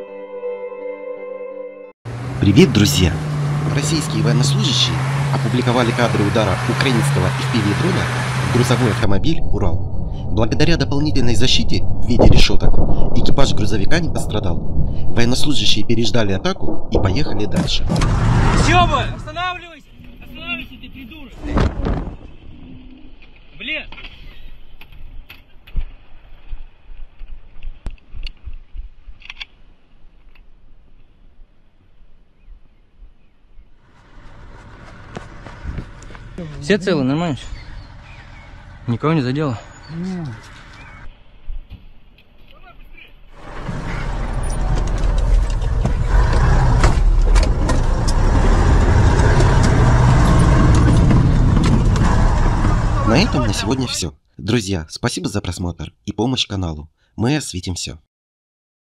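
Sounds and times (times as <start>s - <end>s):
truck diesel engine under load: 2.1s - 9.1s, 17.9s - 19.3s, 33.9s - 41.0s, 43.4s - 53.9s.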